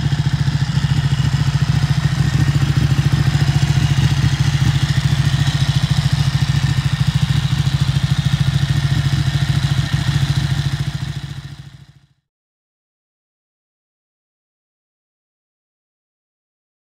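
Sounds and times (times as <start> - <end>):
motorcycle engine idling: 0.0 - 12.2.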